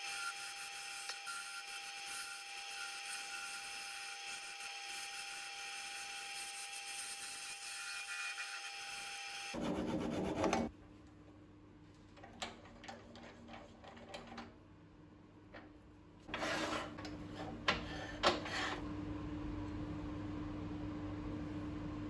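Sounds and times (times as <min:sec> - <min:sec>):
short scrape: 0:16.3 - 0:18.8.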